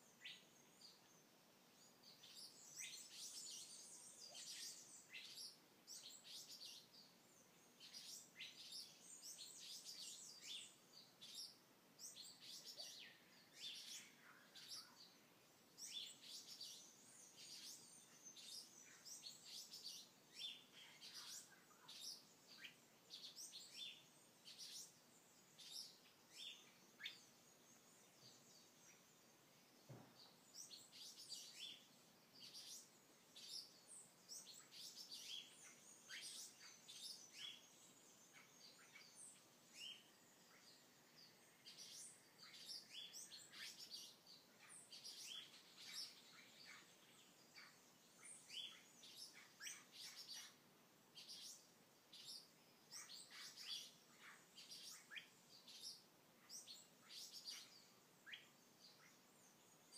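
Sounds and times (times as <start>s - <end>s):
low steady hiss: 0.0s - 59.9s.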